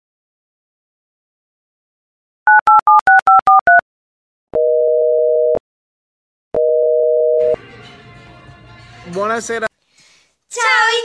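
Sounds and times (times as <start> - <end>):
telephone call tones: 6.6 - 7.6.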